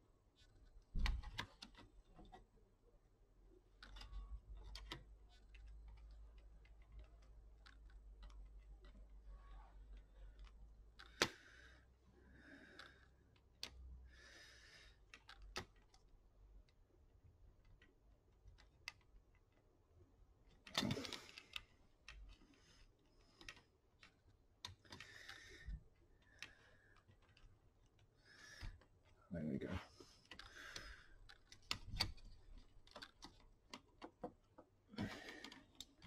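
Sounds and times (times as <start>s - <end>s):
clicks of small plastic parts: 3.7s - 11.9s, 12.6s - 13.9s, 14.8s - 16.8s, 17.6s - 19.6s, 20.4s - 29.2s, 30.0s - 36.0s.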